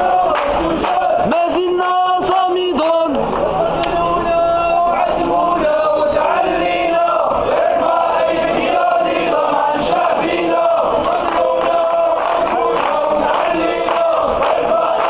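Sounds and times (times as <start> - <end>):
crowd of men chanting: 0.0 - 15.0.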